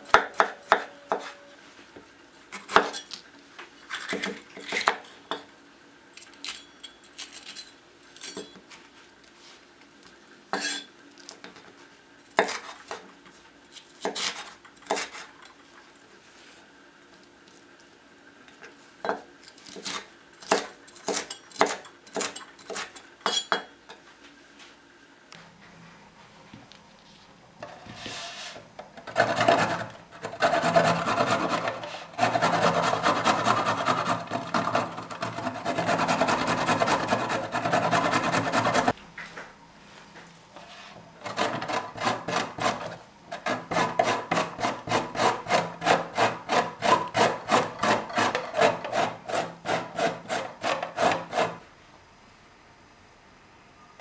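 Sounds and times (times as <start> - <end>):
carrots grated on metal grater: 28.0 - 38.9, 40.6 - 51.6.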